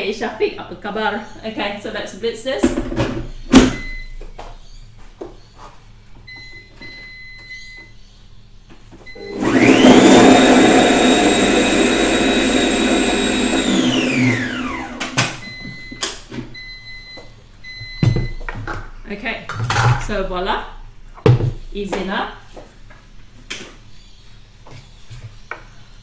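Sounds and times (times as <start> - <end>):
blender motor whining: 9.1 - 15.6.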